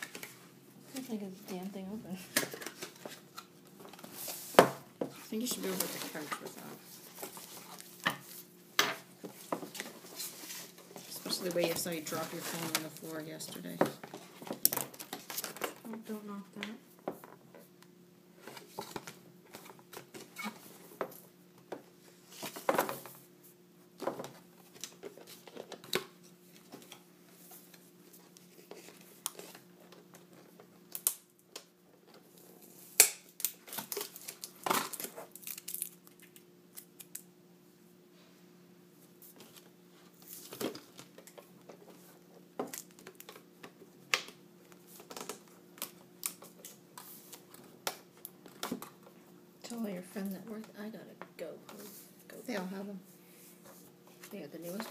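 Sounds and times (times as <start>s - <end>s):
cardboard and plastic packaging rustling: 0.0s - 16.2s, 18.3s - 23.3s, 23.9s - 36.4s, 39.0s - 44.0s
faint steady hum: 0.0s - 54.9s.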